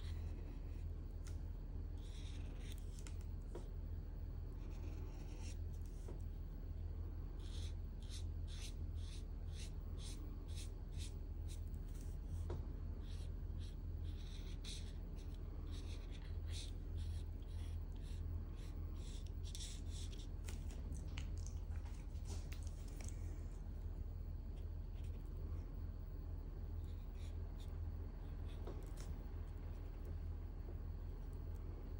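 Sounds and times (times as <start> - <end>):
steady low hum: 0.0 - 31.9
marker scratching on paper: 2.0 - 3.0, 4.6 - 6.0, 7.4 - 12.4, 13.0 - 20.3, 26.8 - 27.7.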